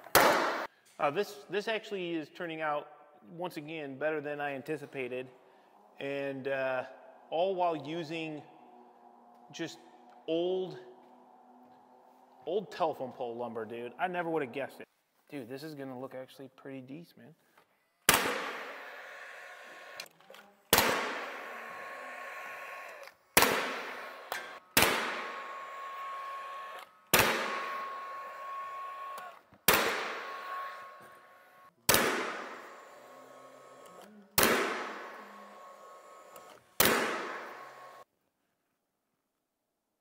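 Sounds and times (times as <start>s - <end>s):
nail gun firing: 0.0s - 0.7s, 18.1s - 18.9s, 20.7s - 21.4s, 23.4s - 25.5s, 26.8s - 28.0s, 29.2s - 30.9s, 31.9s - 32.8s, 34.4s - 35.2s, 36.4s - 37.8s
mechanical whir: 21.0s - 31.7s.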